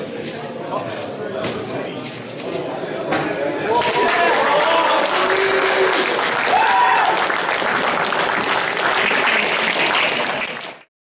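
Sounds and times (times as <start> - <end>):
audience applauding: 3.7 - 10.9.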